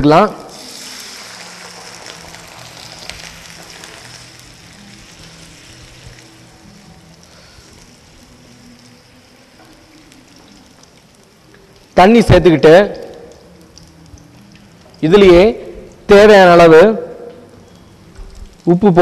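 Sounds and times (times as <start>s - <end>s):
water poured into pan: 0.5s - 6.2s
vegetables sizzling in a frying pan: 0.5s - 12.0s.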